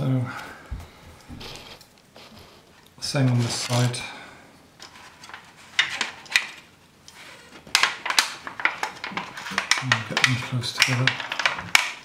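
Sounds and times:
foil dish crinkling: 4.8s - 12.0s.

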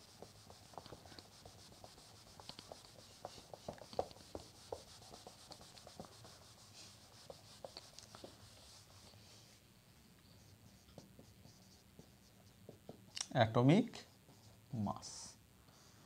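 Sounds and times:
cloth rubbing whiteboard: 0.0s - 9.6s, 10.4s - 12.9s.

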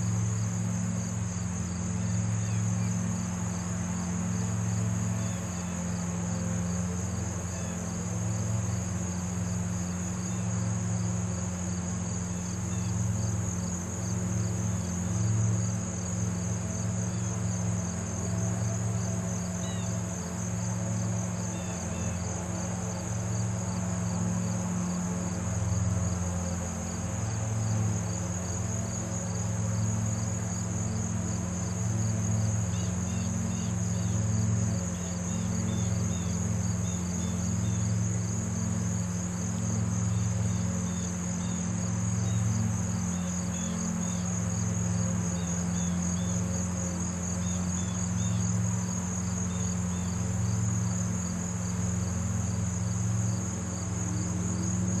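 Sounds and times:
crickets trilling: 0.0s - 55.0s
steady low hum: 0.0s - 55.0s.

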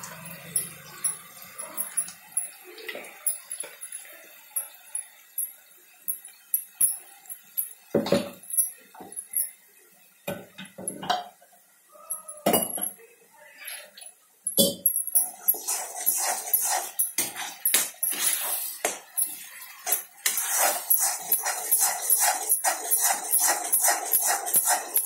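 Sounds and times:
bangles clinking: 0.1s - 2.6s, 3.2s - 9.6s, 14.5s - 18.3s
metal ladle scraping iron pan: 19.9s - 25.0s.

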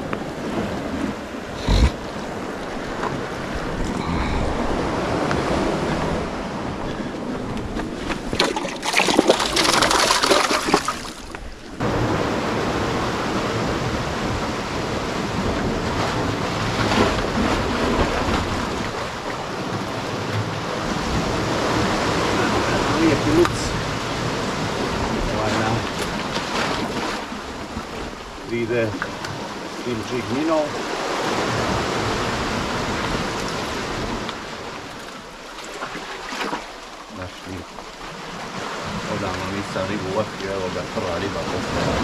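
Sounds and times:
wind on microphone: 0.0s - 8.4s
sea surf on rocky shore: 0.0s - 42.0s.

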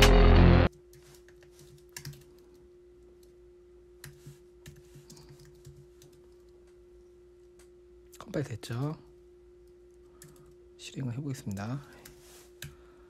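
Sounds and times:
background music: 0.0s - 0.7s.

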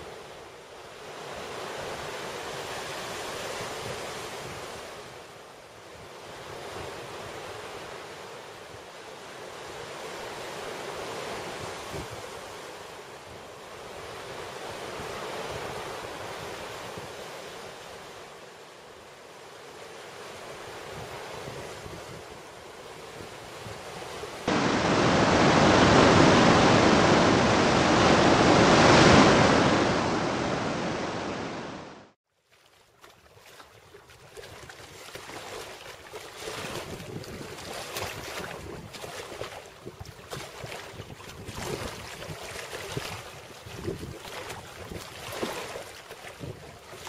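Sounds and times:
surf washing over rocky shore: 24.3s - 32.2s.

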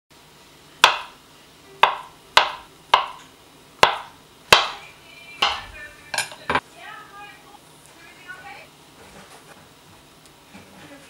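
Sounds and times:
knife knocking on cutting board: 1.8s - 3.2s, 3.8s - 4.8s.

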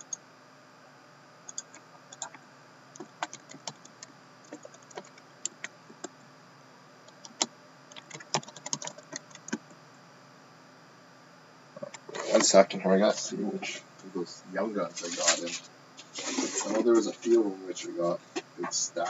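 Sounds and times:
laptop keyboard typing: 1.5s - 2.4s, 3.0s - 6.1s, 7.2s - 9.7s.

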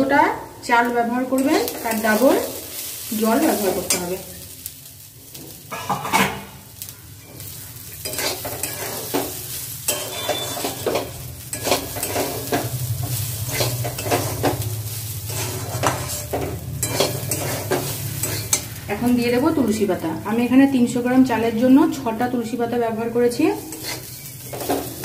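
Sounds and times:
light sizzle: 0.0s - 25.0s
spatula scraping a pan: 5.3s - 18.8s, 23.6s - 25.0s.

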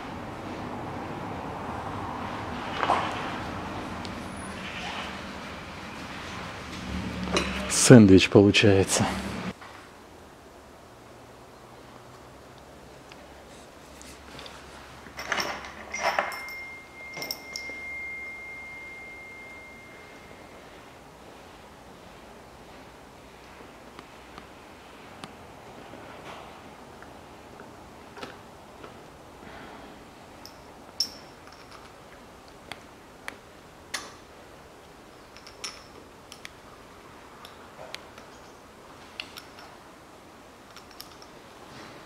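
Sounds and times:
metallic ringing tone: 15.8s - 21.0s, 30.4s - 31.5s.

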